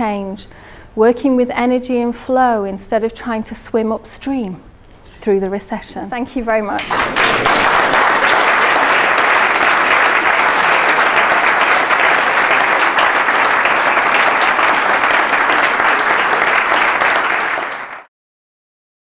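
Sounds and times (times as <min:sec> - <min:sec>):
audience applauding: 0:06.8 - 0:18.1.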